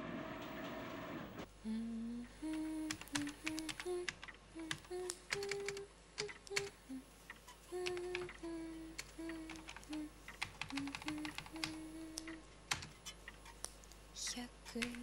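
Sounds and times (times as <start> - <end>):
woman humming: 1.6 - 12.5, 14.2 - 15.0
sharp typing clicks: 2.6 - 6.7, 7.3 - 8.4, 9.0 - 13.6, 14.6 - 15.0.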